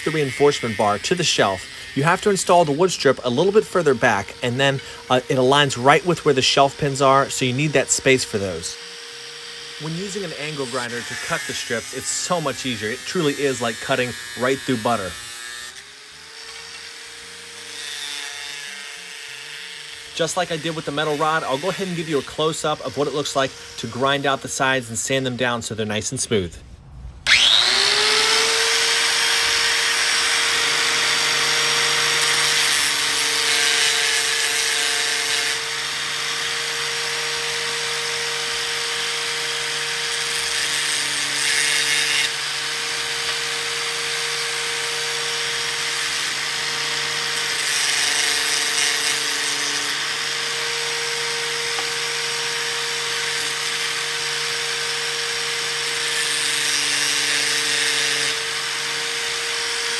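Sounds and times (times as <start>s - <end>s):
angle grinder grinding metal: 0.0s - 26.2s, 27.3s - 59.9s.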